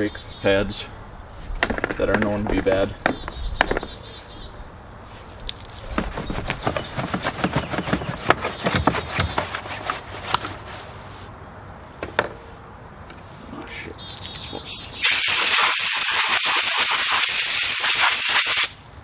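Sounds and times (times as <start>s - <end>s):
brush scrubbing a tire: 6.0s - 11.3s, 15.0s - 18.8s.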